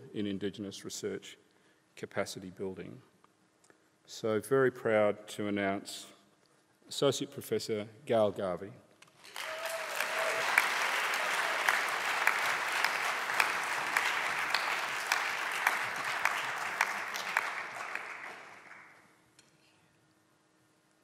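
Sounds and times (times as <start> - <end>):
audience applauding: 9.2 - 19.1.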